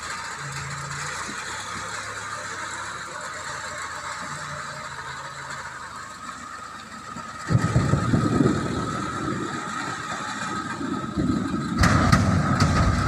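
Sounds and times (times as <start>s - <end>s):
diesel engine running: 0.0s - 13.0s
loud crash into steel bin: 11.8s - 13.0s.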